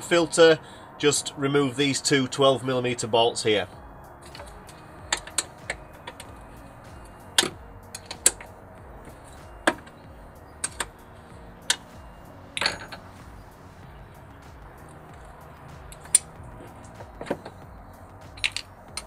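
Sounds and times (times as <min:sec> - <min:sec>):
spanner clinking on bolts: 0:04.2 - 0:13.4, 0:14.8 - 0:19.0.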